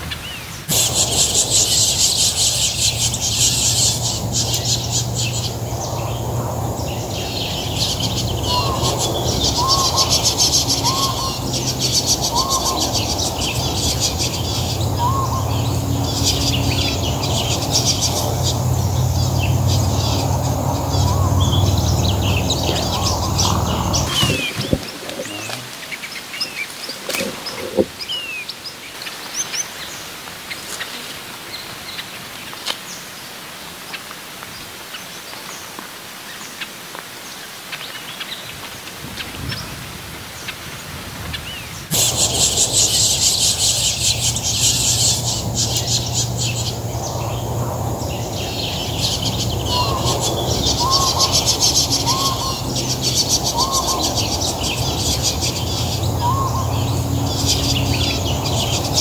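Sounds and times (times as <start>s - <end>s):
finches chirping: 0.3s - 28.5s, 41.9s - 59.0s.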